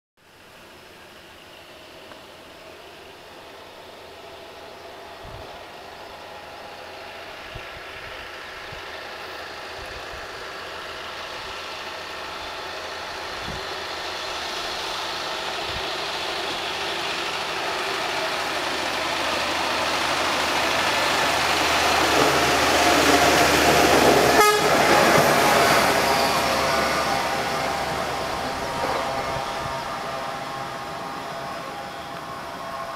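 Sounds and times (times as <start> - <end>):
rail truck engine and wheels: 0.2 - 32.9
horn toot: 24.3 - 25.3.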